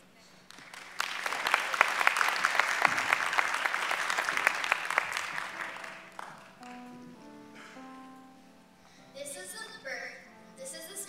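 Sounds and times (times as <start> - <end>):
audience applauding: 0.4 - 7.1
held musical notes: 3.7 - 11.0.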